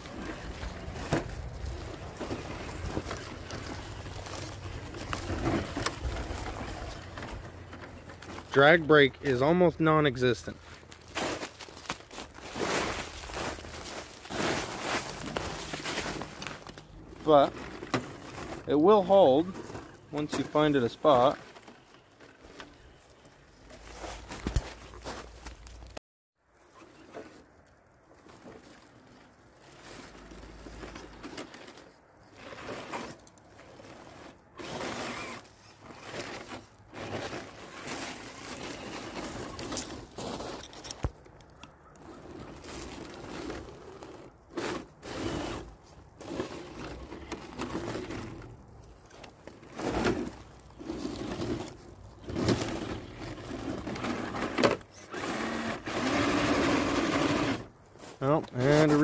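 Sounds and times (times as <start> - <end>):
toy car motor whining: 34.2 - 36.2, 53.6 - 57.7.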